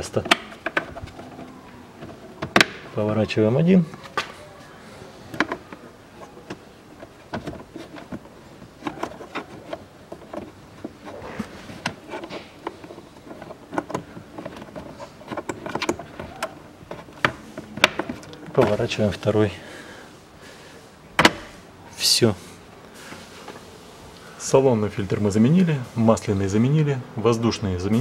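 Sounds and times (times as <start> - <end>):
faint rustling: 0.0 - 26.6
plastic glovebox clicks and knocks: 0.1 - 2.9, 5.3 - 11.0, 11.8 - 18.8, 21.2 - 21.5.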